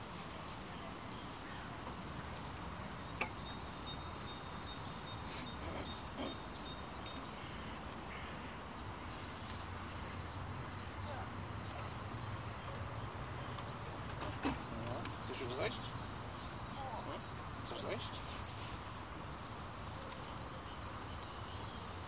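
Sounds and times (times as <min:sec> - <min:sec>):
low background hiss: 0:00.0 - 0:22.0
faint bird calls: 0:03.1 - 0:19.0.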